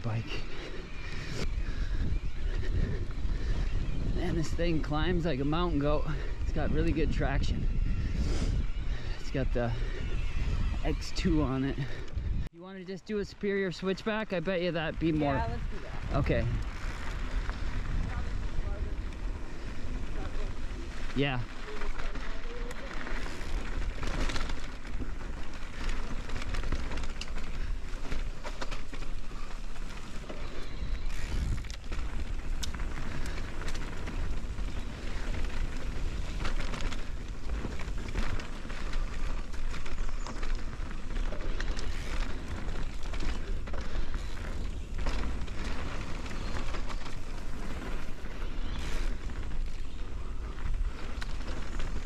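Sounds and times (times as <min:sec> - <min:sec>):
tyres on dirt and gravel: 0:00.0 - 0:07.7, 0:08.5 - 0:52.0
wind buffeting microphone: 0:00.0 - 0:12.5, 0:14.8 - 0:52.0
bike knocking and rattling: 0:16.3 - 0:52.0.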